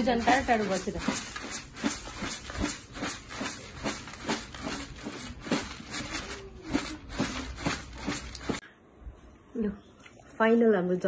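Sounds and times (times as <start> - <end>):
puffed rice rattling in a basin: 0.0 - 8.6.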